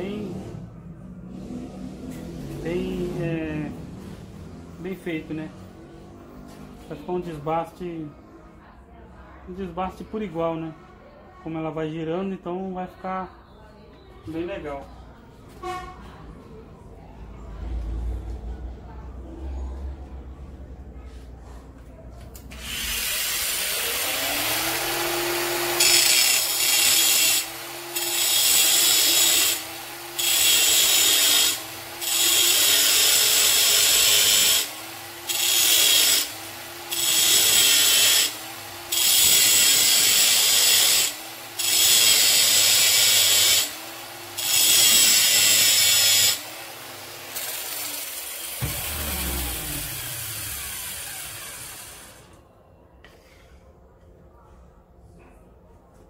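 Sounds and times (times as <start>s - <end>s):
angle grinder grinding metal: 22.6s - 52.3s.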